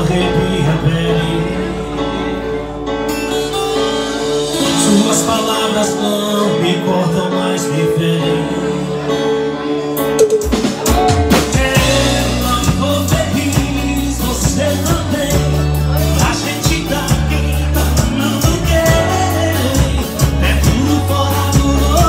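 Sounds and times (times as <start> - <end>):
bass notes: 0.0 - 22.0
guitar strumming: 0.0 - 22.0
drum kit playing: 3.0 - 6.9, 9.9 - 22.0.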